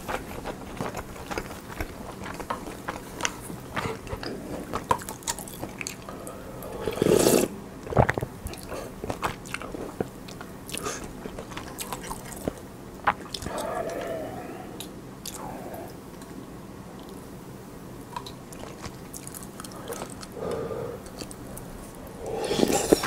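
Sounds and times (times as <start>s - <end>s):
chewing and wet mouth clicks: 0.0s - 6.2s, 8.1s - 14.2s, 14.8s - 15.5s, 18.1s - 23.0s.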